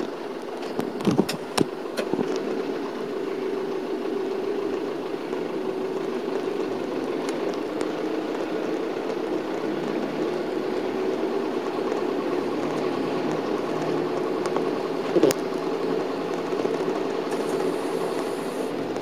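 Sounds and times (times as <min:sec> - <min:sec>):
bus engine running: 0:00.0 - 0:19.0.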